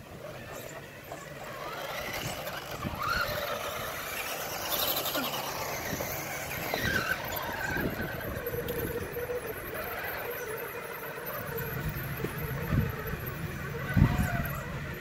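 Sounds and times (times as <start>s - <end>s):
electric motor and gears whining: 0.0s - 15.0s.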